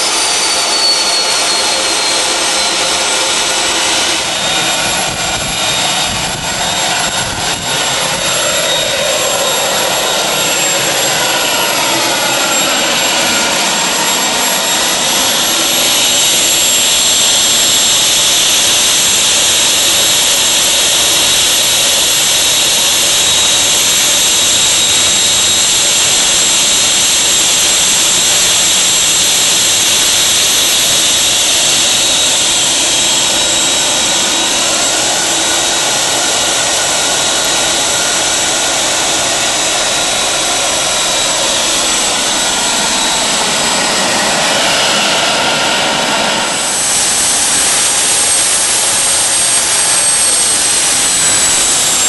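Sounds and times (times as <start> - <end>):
high-pitched turbine whine: 0.0 - 52.0
turbojet engine roaring: 0.0 - 52.0.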